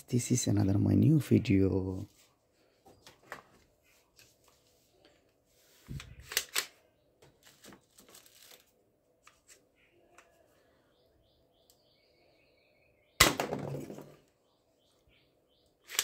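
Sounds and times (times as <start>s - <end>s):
plastic toy pistol clicking: 6.2s - 6.8s.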